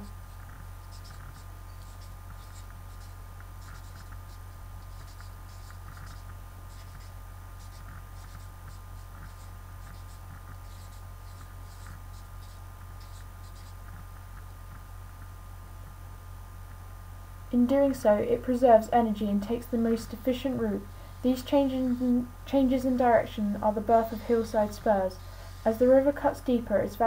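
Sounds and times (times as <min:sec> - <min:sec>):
steady low hum: 0:00.0 - 0:27.0
marker pen scratching on paper: 0:00.3 - 0:14.8.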